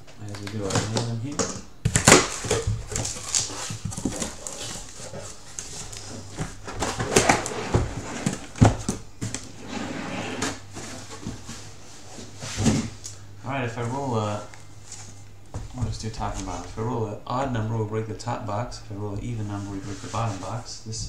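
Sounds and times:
cardboard box scraping and rustling: 9.6s - 13.0s.

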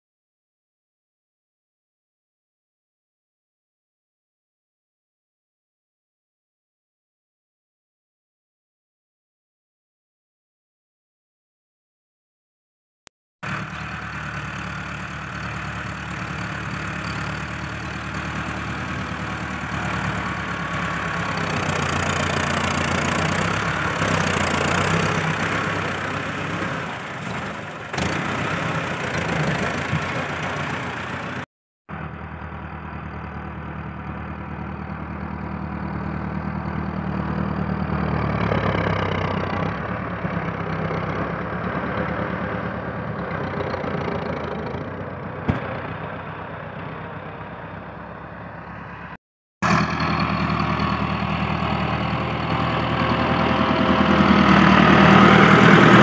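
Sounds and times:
tractor diesel engine running: 13.4s - 56.0s.

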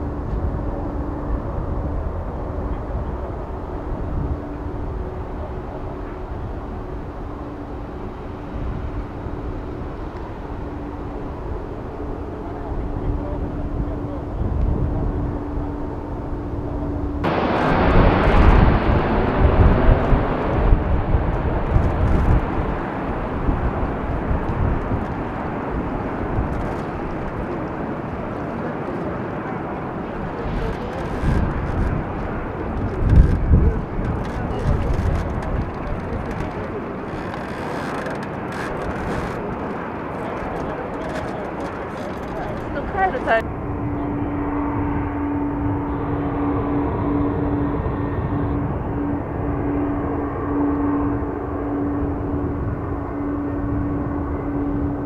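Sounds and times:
distant jet engine roar: 0.0s - 55.0s.

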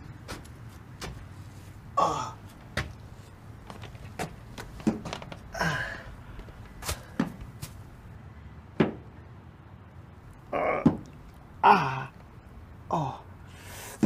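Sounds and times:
man grunting: 2.0s - 2.4s, 10.5s - 11.0s, 11.6s - 12.2s, 12.9s - 13.3s
sharp knocks and thuds: 3.6s - 5.4s, 6.8s - 7.8s, 8.8s - 9.1s, 10.8s - 11.1s.

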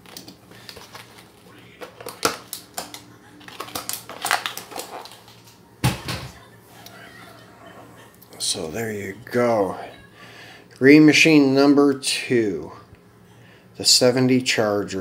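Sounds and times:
plastic packaging crackling: 0.0s - 5.6s.

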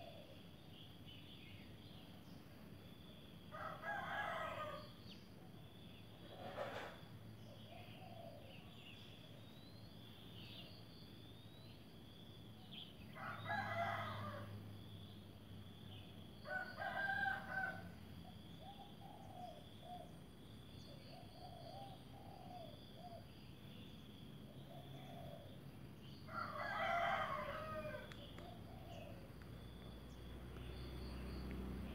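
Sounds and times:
rooster crowing: 3.5s - 4.9s, 13.2s - 14.6s, 16.4s - 18.0s, 26.3s - 29.2s.

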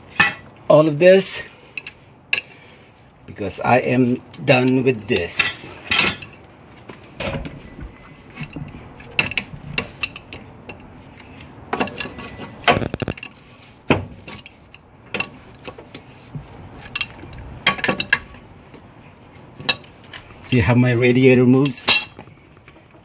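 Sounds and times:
hand tools clinking on metal: 4.5s - 6.4s.

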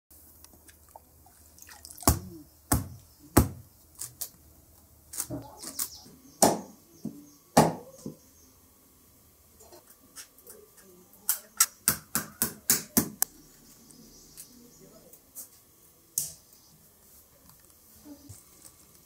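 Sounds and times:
machete chopping wood: 2.1s - 3.6s.

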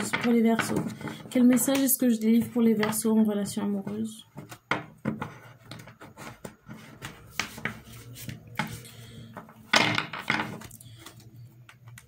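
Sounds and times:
cards being shuffled: 5.7s - 9.0s.

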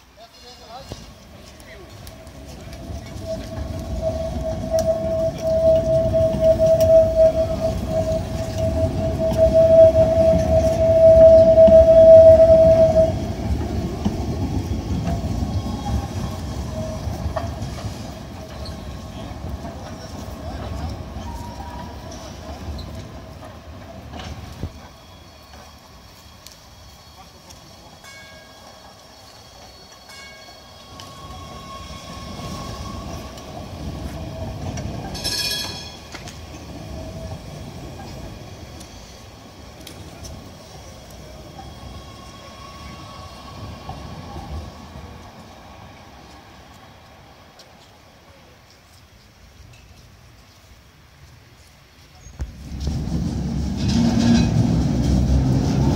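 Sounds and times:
tram rumbling on track: 0.0s - 55.9s
tram wheels squealing on rails: 0.0s - 55.9s
shrill ringing wheel screech: 2.4s - 13.9s, 24.1s - 39.3s.

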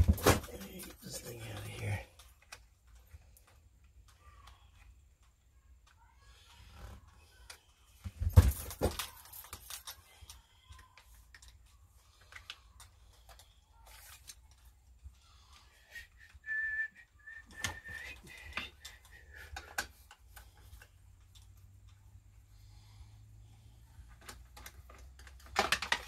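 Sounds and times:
man whistling a tune: 15.9s - 18.6s.

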